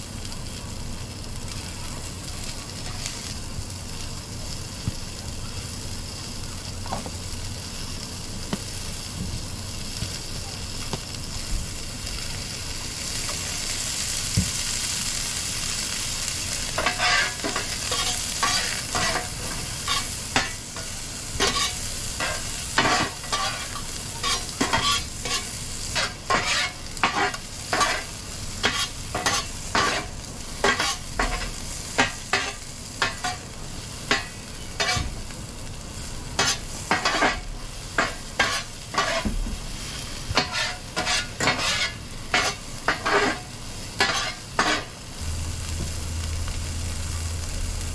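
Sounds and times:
onions sizzling on griddle: 0:00.0 - 0:47.9
spatula scraping and tapping griddle: 0:16.8 - 0:33.4, 0:34.1 - 0:35.2, 0:36.4 - 0:39.6, 0:40.3 - 0:44.9.

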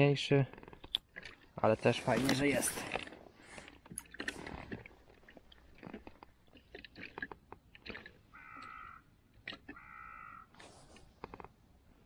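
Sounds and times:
ice and snow crunching: 0:01.4 - 0:06.2
crow cawing: 0:08.3 - 0:09.0, 0:09.7 - 0:10.5.

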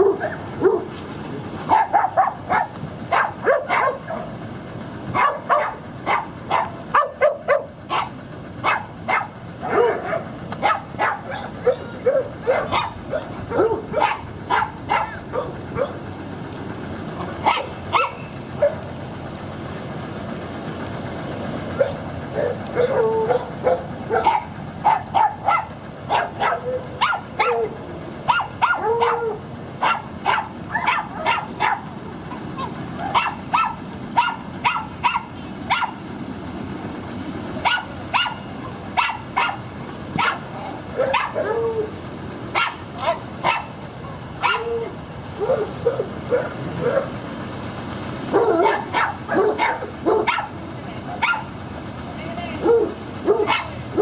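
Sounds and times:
dog barking: 0:00.0 - 0:00.9, 0:01.6 - 0:04.3, 0:05.2 - 0:16.0, 0:17.4 - 0:18.8, 0:21.8 - 0:31.9, 0:32.6 - 0:36.0, 0:37.6 - 0:39.6, 0:40.2 - 0:41.9, 0:42.5 - 0:47.2, 0:48.3 - 0:50.6, 0:51.2 - 0:51.5, 0:52.6 - 0:54.0.

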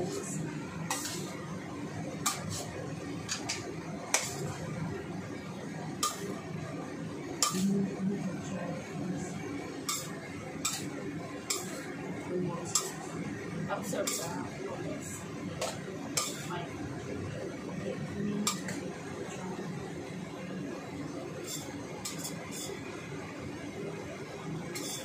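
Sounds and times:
metal utensils clanking on wok: 0:00.9 - 0:01.3, 0:02.3 - 0:04.6, 0:06.0 - 0:06.3, 0:07.4 - 0:07.8, 0:09.8 - 0:10.9, 0:11.5 - 0:11.9, 0:12.7 - 0:13.0, 0:13.8 - 0:14.4, 0:15.6 - 0:16.5, 0:18.4 - 0:18.8, 0:21.4 - 0:22.8, 0:24.8 - 0:25.0.

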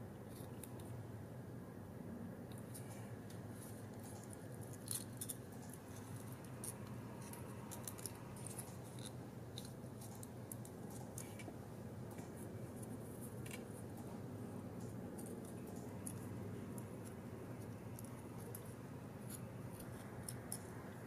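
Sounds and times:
steady low hum: 0:00.0 - 0:21.0
stiff paper clicks and crinkles: 0:02.5 - 0:14.1.

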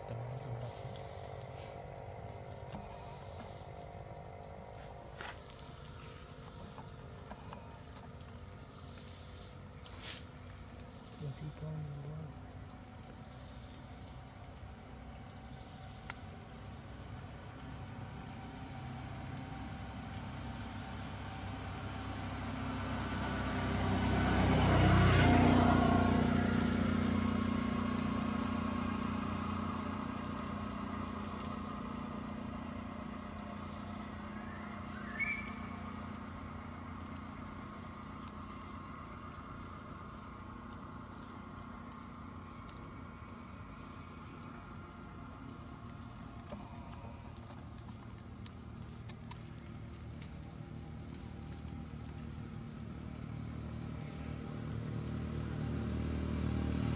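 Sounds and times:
insects droning: 0:00.0 - 0:56.9
vehicle passing: 0:18.4 - 0:46.0, 0:50.6 - 0:56.9.

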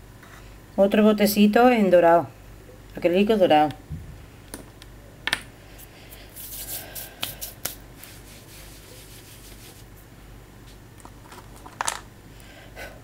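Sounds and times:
fabric rubbing on microphone: 0:05.8 - 0:10.0.

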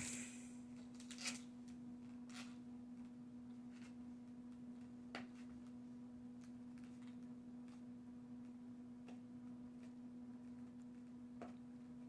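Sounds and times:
low hum: 0:00.0 - 0:00.7.

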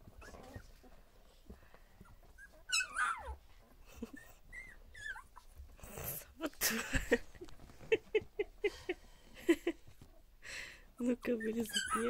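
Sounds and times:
puppies whimpering: 0:00.0 - 0:05.8, 0:11.0 - 0:12.0.

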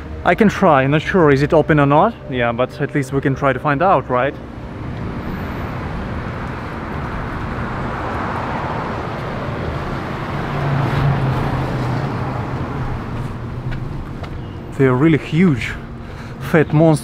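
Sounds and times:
street traffic: 0:00.0 - 0:17.0
vehicle engine passing: 0:03.9 - 0:17.0.

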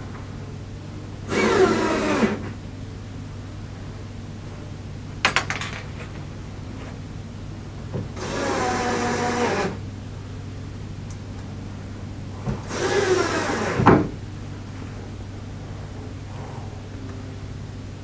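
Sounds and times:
cordless drill driving screws: 0:01.3 - 0:02.4, 0:12.6 - 0:14.0.

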